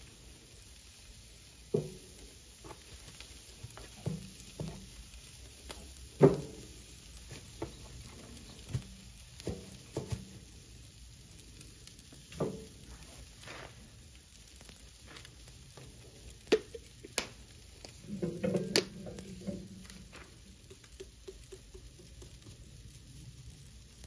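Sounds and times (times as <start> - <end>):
faint sizzle: 0.0 - 24.0
meat knocking on grill grate: 1.7 - 2.9, 3.7 - 5.0, 5.6 - 10.4, 15.8 - 22.8.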